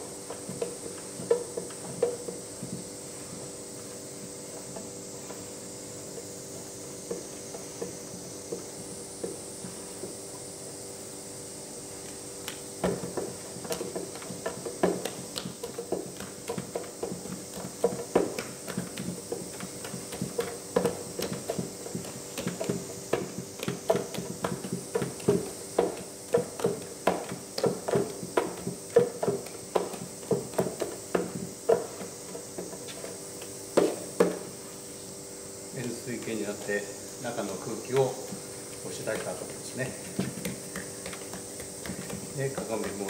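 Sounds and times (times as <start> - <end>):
dough kneaded in bowl thuds: 12.0 - 34.8, 37.2 - 43.0.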